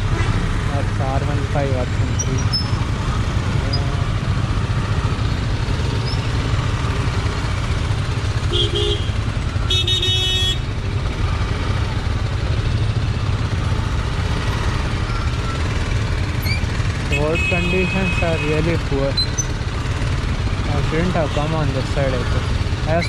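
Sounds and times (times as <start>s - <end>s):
motorcycle engine rumbling: 0.0s - 23.0s
vehicle horns honking: 8.4s - 10.8s, 17.0s - 18.8s.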